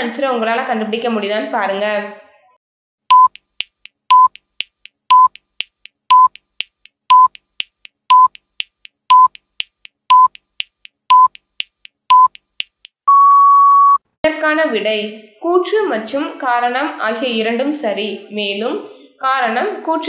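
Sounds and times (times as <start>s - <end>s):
short electronic beep: 3.1s - 3.4s, 4.1s - 4.4s, 9.1s - 9.3s, 13.1s - 14.0s.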